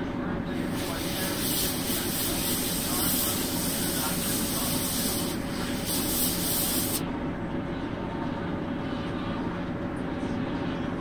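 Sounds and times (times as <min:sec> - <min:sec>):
airbrush spraying: 0:00.6 - 0:07.0.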